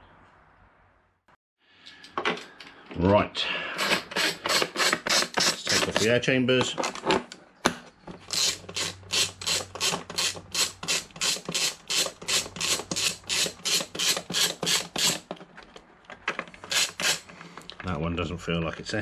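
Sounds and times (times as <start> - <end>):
ratchet wrench clicking: 8.3 - 15.2, 16.7 - 17.2.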